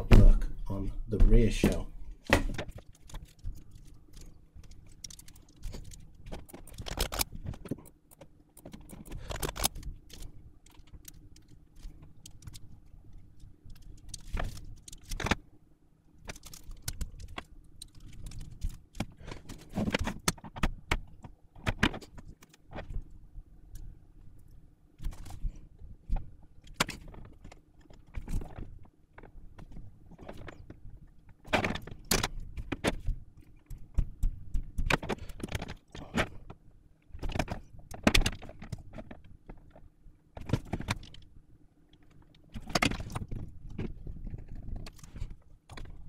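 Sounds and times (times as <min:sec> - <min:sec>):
faint steady hum: 0:00.0 - 0:46.0
tools and small parts clicking: 0:02.2 - 0:15.4.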